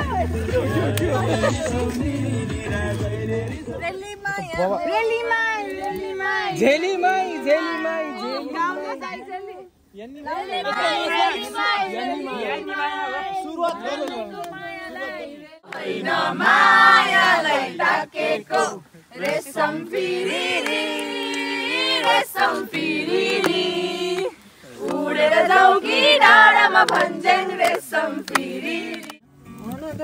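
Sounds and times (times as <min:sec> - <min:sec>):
group singing in chorus: 0:00.0 - 0:03.9, 0:10.3 - 0:29.2.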